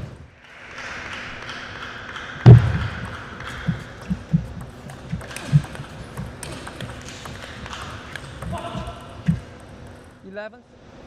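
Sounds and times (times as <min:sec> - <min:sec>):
table tennis ball hits: 0:00.8 - 0:10.1
loud thud: 0:02.5 - 0:03.0.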